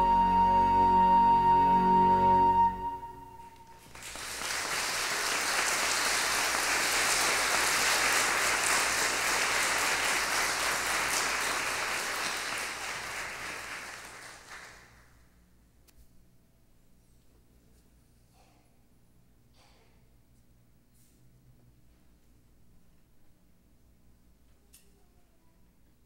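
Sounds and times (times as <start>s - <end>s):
audience applauding: 3.6s - 15.1s.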